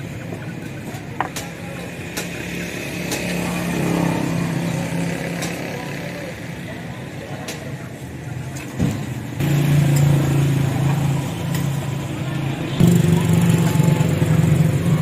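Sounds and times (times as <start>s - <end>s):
vehicle engine running: 9.4s - 15.0s.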